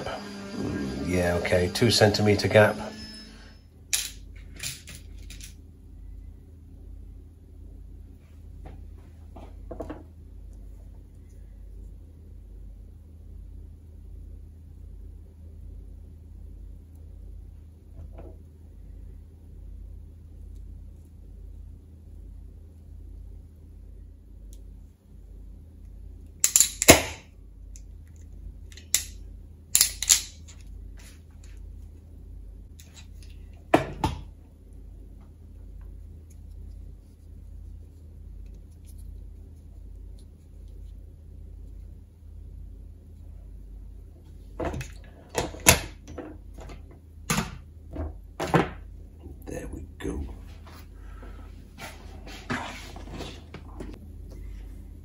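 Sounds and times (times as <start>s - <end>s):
wire stripper snapping: 26.4s - 27.2s.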